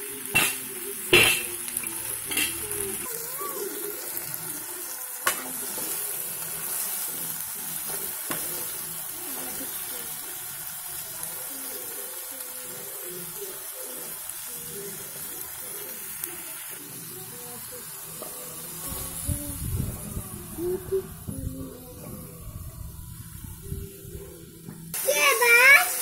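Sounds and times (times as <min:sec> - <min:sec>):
curry sizzling in a pot: 0:00.0 - 0:22.3, 0:24.9 - 0:26.0.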